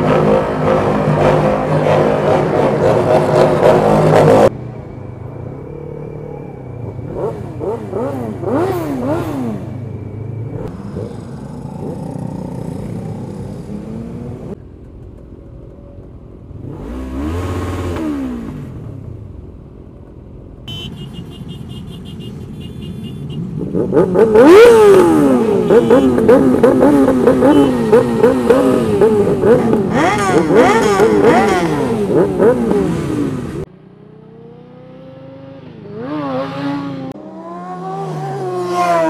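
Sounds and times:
motorcycle engines revving: 0.0 - 4.9, 5.9 - 15.1, 15.9 - 19.6, 20.7 - 39.0.

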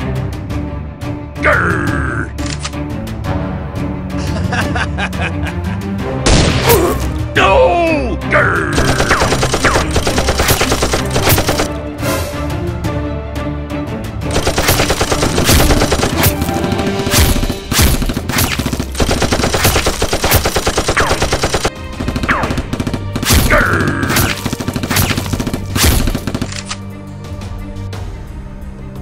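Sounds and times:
single gunshots: 6.2 - 7.0, 22.2 - 26.5
automatic gunfire bursts: 8.8 - 11.7, 14.4 - 16.7, 17.3 - 23.5.

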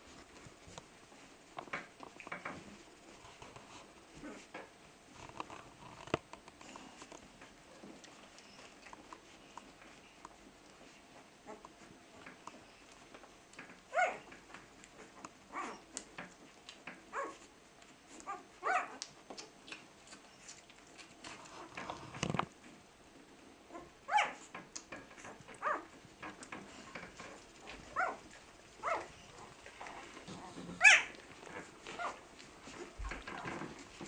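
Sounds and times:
puppies nursing rustling: 0.0 - 34.0
puppies squeaking and whimpering: 15.0 - 16.0, 27.6 - 33.9.

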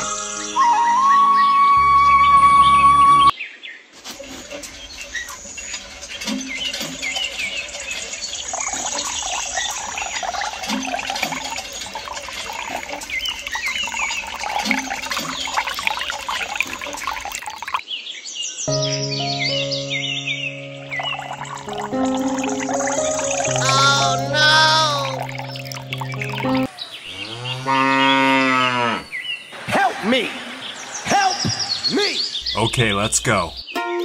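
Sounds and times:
music: 0.0 - 3.3, 18.7 - 26.7, 33.7 - 34.0
trickle of water: 4.2 - 17.8, 20.8 - 26.7
small birds chirping: 4.5 - 29.6, 30.4 - 33.8.

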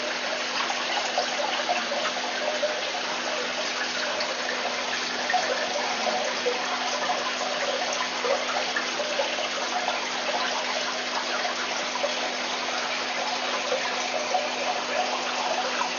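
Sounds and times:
aquarium water splashing and bubbling: 0.0 - 15.9.

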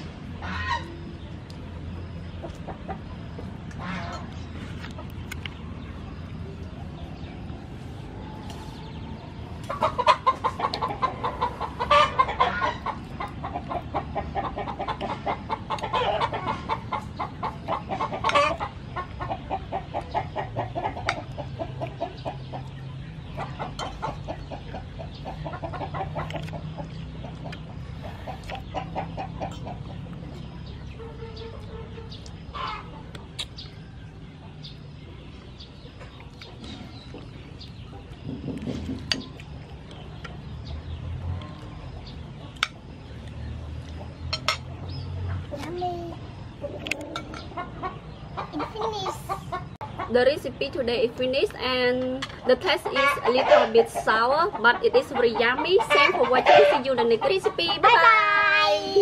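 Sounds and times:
chickens clucking: 0.0 - 59.0.

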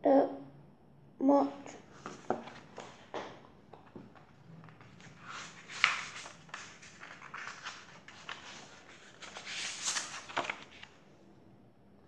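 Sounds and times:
book pages rustling: 1.8 - 11.0.

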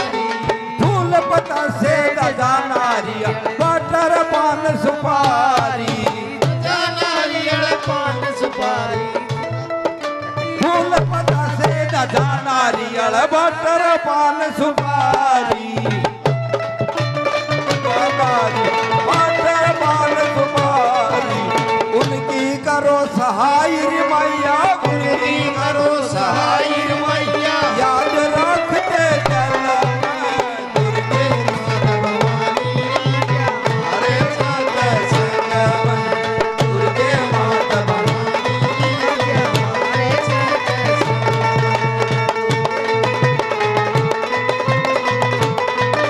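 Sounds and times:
dholak drum beat: 0.0 - 46.0
man singing into a microphone: 0.0 - 46.0
held accompanying notes: 15.0 - 46.0.

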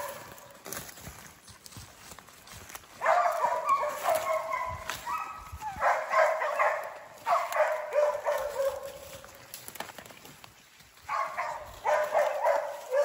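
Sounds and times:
dogs barking and yelping: 0.0 - 0.4, 2.9 - 9.4, 11.0 - 13.0.

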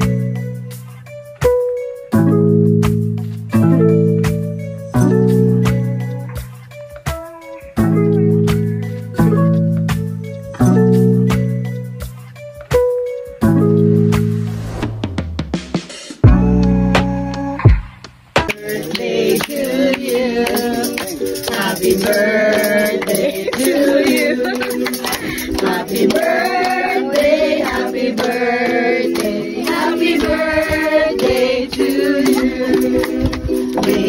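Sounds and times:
hands clapping: 18.4 - 34.0
group singing: 18.5 - 34.0.

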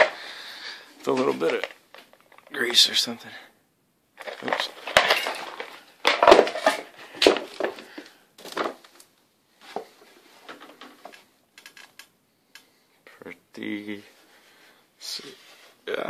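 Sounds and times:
faint clicks: 11.1 - 12.7.

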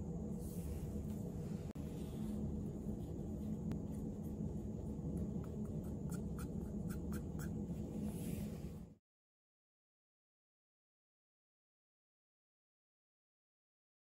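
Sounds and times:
low machine hum: 0.0 - 9.0.

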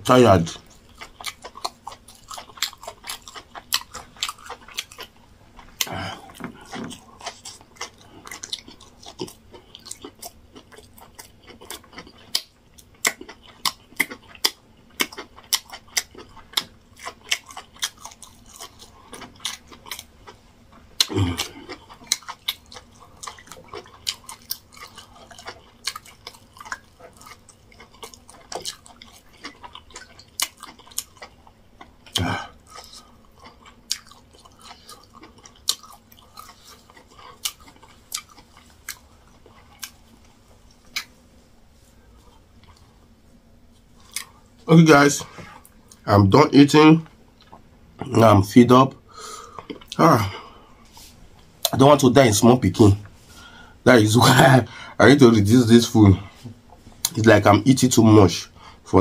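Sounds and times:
wet chewing and lip smacks: 0.5 - 20.4, 21.0 - 41.2, 43.9 - 44.4
deep throat sounds: 5.8 - 6.9, 21.0 - 21.8, 32.2 - 32.6.

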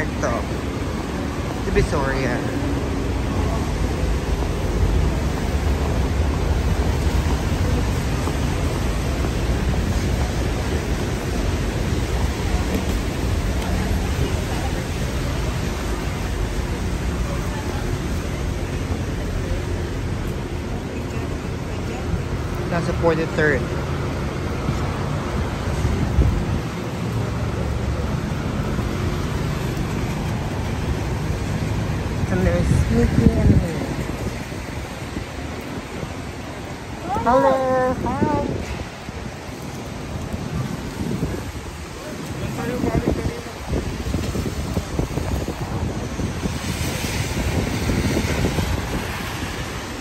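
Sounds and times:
city street traffic: 0.0 - 50.0
wind buffeting microphone: 23.9 - 50.0.

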